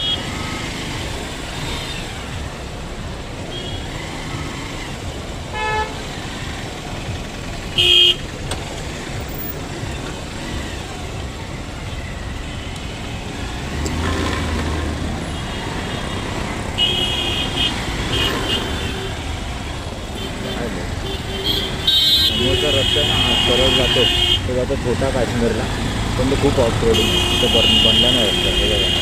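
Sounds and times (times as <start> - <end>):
vehicle horns honking: 0.0 - 0.9, 3.5 - 6.6, 7.7 - 8.4, 11.9 - 25.0, 25.6 - 29.0
road rumble: 0.0 - 29.0.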